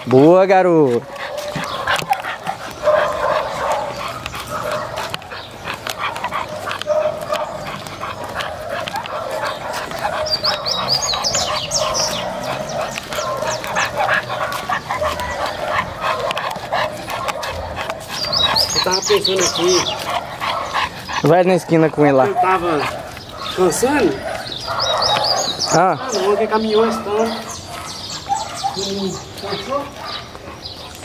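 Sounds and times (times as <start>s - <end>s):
dog whining and yelping: 1.1s - 21.3s.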